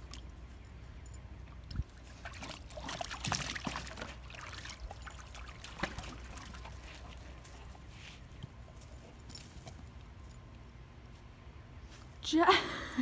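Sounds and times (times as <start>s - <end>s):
dog splashing water: 1.8s - 7.8s.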